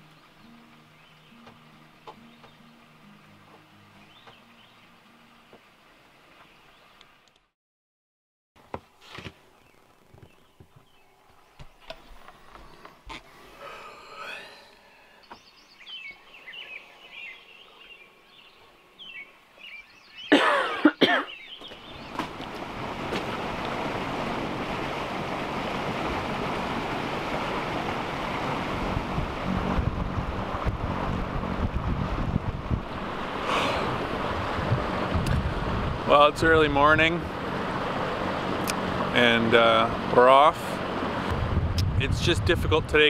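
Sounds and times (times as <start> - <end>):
wind and water rushing: 0.0 - 7.3, 10.9 - 43.0
boat engine drone: 12.3 - 15.3, 21.8 - 43.0
loud cough-like vocal burst: 20.3 - 21.4.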